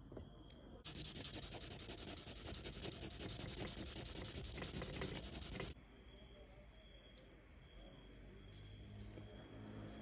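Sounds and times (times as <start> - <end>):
sanding stick scratching: 0.9 - 5.8.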